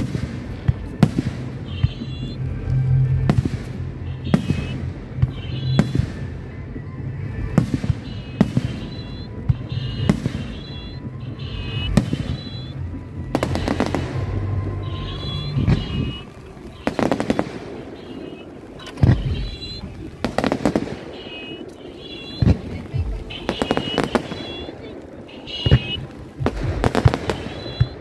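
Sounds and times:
dense crackling: 0.0 - 28.0
firework shells bursting: 11.7 - 28.0.

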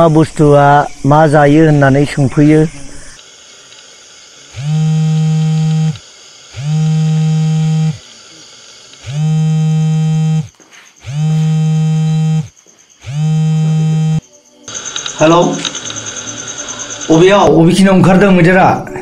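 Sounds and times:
phone ringing with buzzing tone: 4.5 - 17.5.

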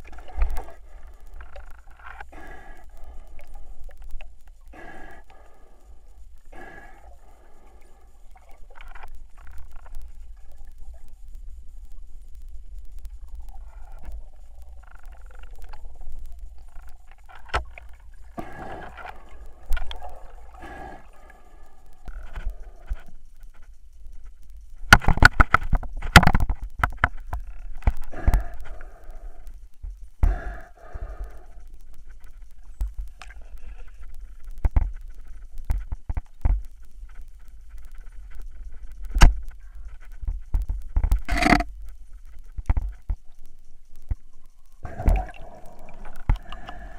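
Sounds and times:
low underwater rumble: 44.2 - 46.9.

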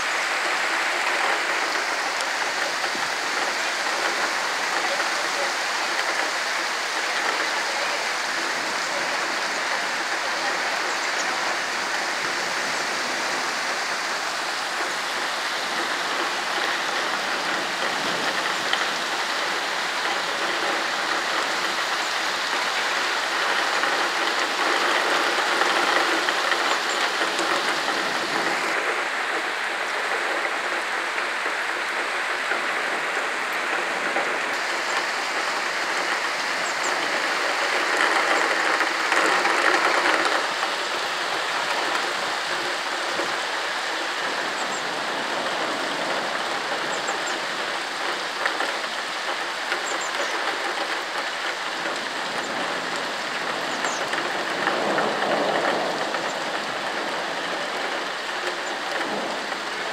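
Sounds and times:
heavy rain on paving: 0.0 - 59.9.

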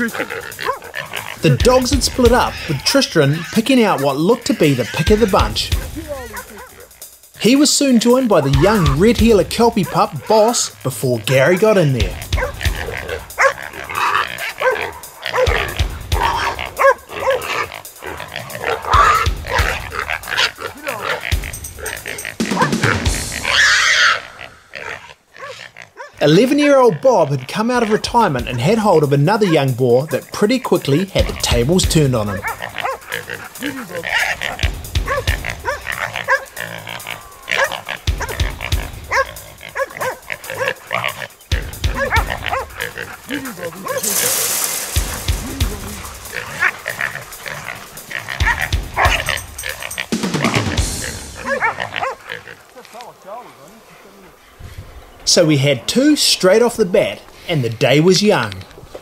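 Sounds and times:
background music with beat: 0.0 - 23.6, 29.7 - 51.7
boar squealing: 0.0 - 54.4
dogs barking and yelping: 0.0 - 54.4.

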